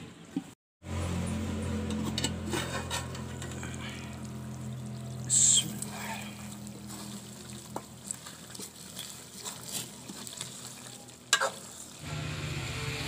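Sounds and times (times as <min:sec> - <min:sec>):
ladle stirring thick gravy: 0:01.9 - 0:12.0.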